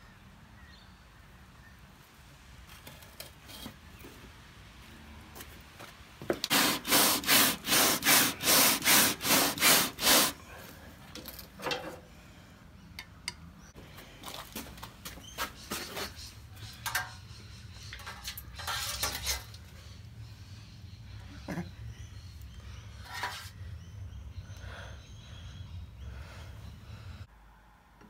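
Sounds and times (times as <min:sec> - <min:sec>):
light scrapes and clicks: 0:17.9 - 0:19.6
screwdriver scraping wire grill: 0:18.0 - 0:19.6.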